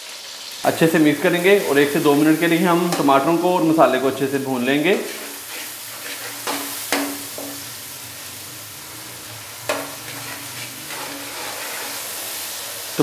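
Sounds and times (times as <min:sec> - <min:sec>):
vegetables sizzling in hot oil: 0:00.0 - 0:13.0
spatula stirring and scraping: 0:04.6 - 0:07.8, 0:08.8 - 0:13.0.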